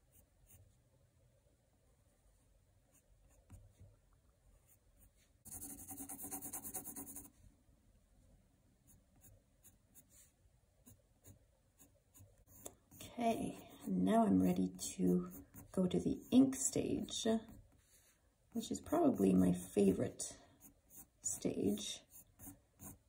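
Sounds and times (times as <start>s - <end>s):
pencil scratching on paper: 4.7s - 7.4s, 8.9s - 20.0s, 20.6s - 23.0s.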